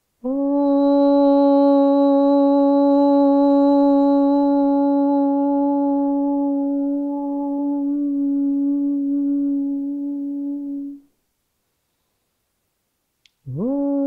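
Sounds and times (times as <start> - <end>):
woman chanting om: 0.2 - 11.1.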